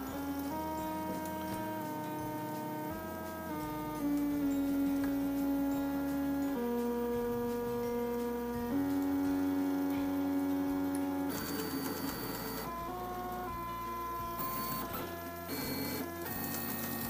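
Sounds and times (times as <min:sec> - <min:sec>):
stepper motors whining: 0:00.0 - 0:17.0.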